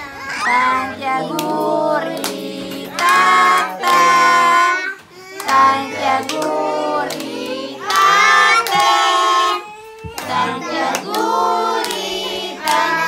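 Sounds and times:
children singing: 0.0s - 13.0s
hands clapping: 1.3s - 4.2s, 5.4s - 9.2s, 10.1s - 13.0s.

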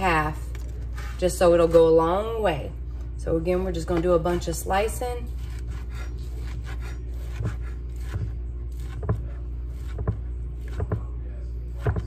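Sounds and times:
knife blade scraping: 5.3s - 9.0s.

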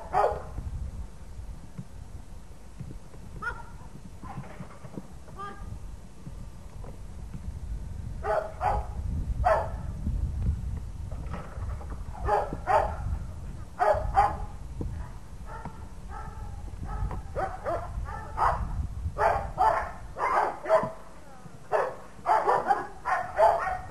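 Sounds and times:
dog barking: 0.0s - 0.5s, 8.2s - 8.9s, 9.5s - 9.8s, 12.2s - 13.0s, 13.8s - 14.4s, 15.5s - 21.0s, 21.7s - 23.9s.

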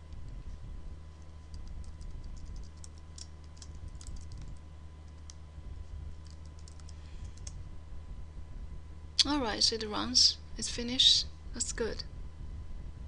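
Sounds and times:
low electrical hum: 0.0s - 13.0s
keyboard and mouse clicking: 1.5s - 5.4s, 6.2s - 7.6s.

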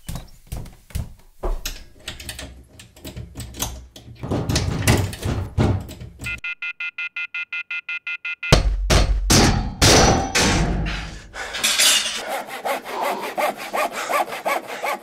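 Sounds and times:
clattering and knocking: 0.6s - 6.3s.

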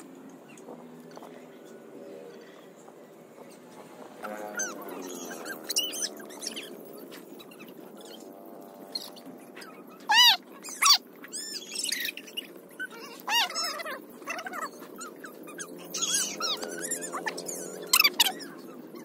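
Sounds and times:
dog yelping: 9.6s - 19.0s.

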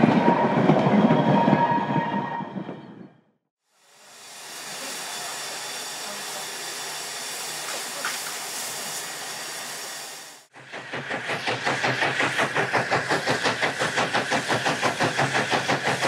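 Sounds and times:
steam hissing from locomotive: 3.6s - 16.0s.

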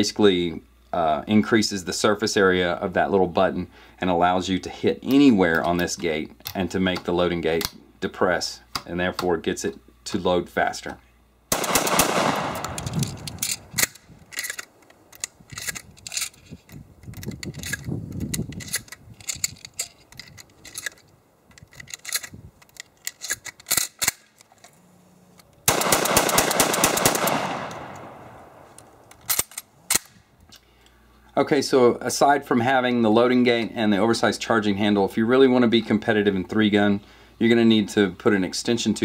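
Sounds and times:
shotgun shells clicking into magazine: 11.6s - 24.7s, 28.8s - 30.1s.

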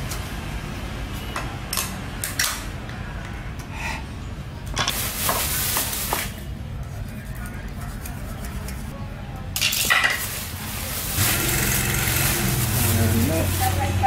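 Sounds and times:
scraping rustle: 10.1s - 14.0s.

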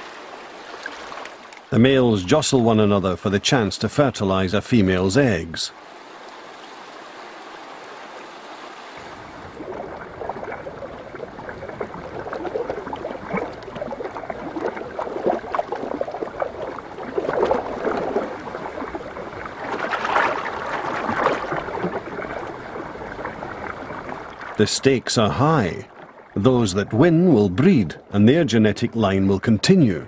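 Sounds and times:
river water splashing: 0.0s - 3.7s, 5.3s - 26.6s.

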